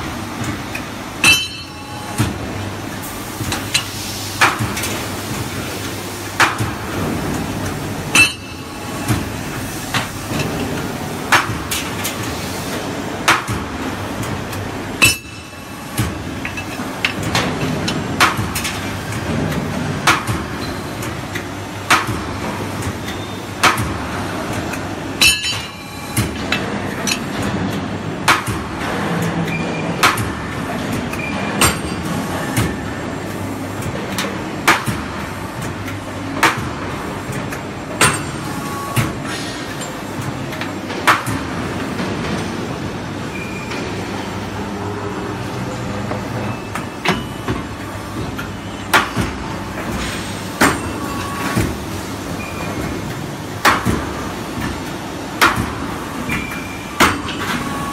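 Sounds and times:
hydraulic unit humming: 0:00.0 - 0:28.8
metallic clank of punching machine: 0:01.2 - 0:02.3.

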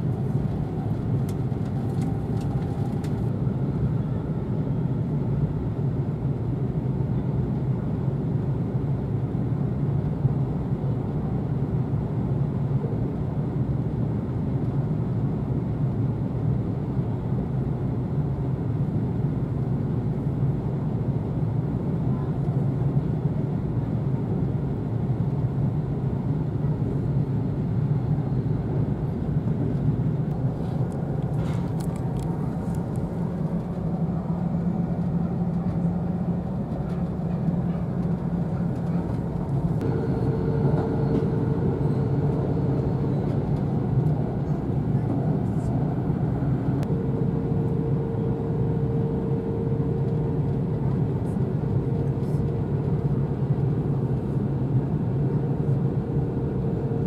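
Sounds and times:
train wheels rumbling on track: 0:29.9 - 0:47.0
thin steady hum: 0:30.4 - 0:57.0.

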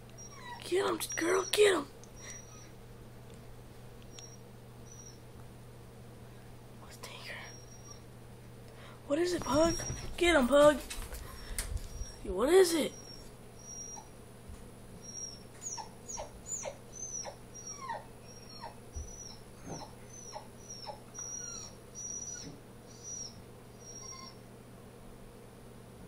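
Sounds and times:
dog whining: 0:00.1 - 0:02.8, 0:04.1 - 0:05.2, 0:07.1 - 0:08.1, 0:09.3 - 0:10.2, 0:11.4 - 0:14.2, 0:15.0 - 0:24.5.

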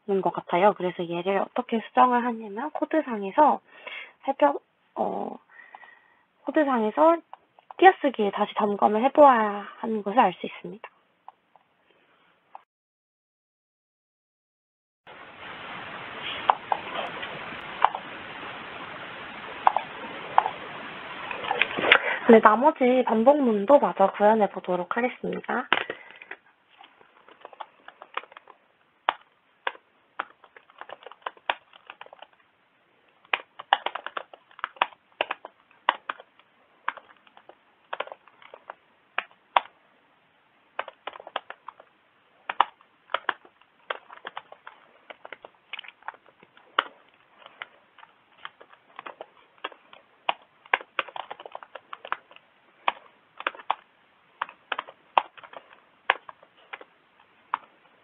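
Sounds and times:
keyboard typing clicks: 0:33.3 - 0:36.3, 0:40.8 - 0:41.9, 0:42.5 - 0:53.8.

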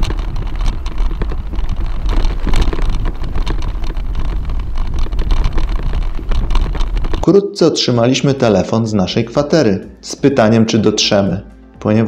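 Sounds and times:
wind rumbling on microphone: 0:00.0 - 0:07.4
bicycle rattling on rough trail: 0:00.0 - 0:09.8.

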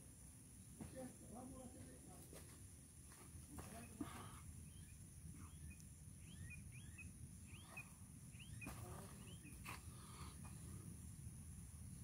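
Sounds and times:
small bird chirping: 0:04.6 - 0:10.5.

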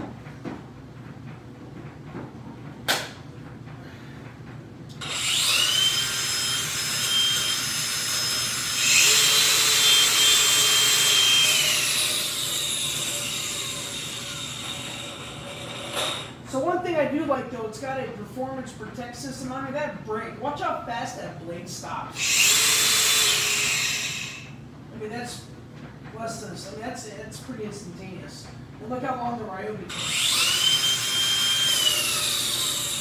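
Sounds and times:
angle grinders whining: 0:05.0 - 0:16.5, 0:22.2 - 0:24.6, 0:29.9 - 0:33.0.

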